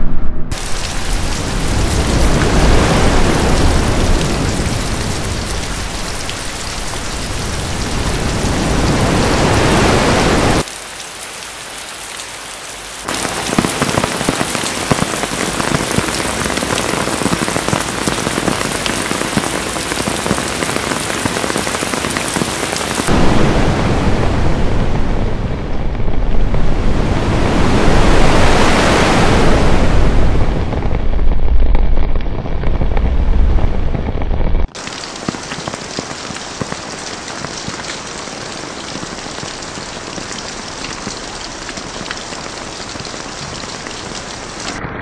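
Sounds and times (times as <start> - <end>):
dense steady rain: 0.5 - 44.9
raindrop ticks: 13.1 - 23.1, 34.7 - 44.8.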